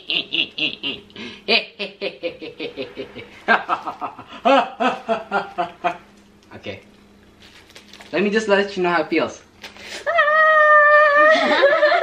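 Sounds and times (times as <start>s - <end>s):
person laughing in breathy bursts: 0.0s - 6.0s.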